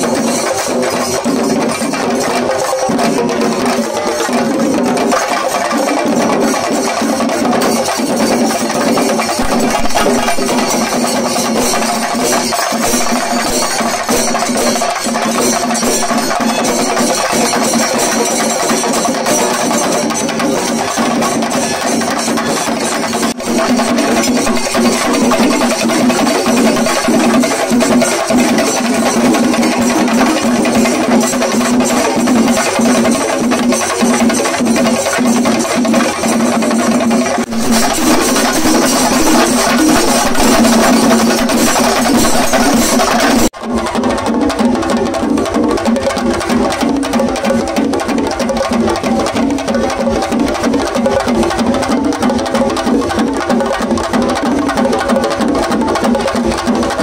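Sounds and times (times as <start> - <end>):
hand cymbals clashing: 0.0 - 43.5
drums beaten with sticks: 0.0 - 57.0.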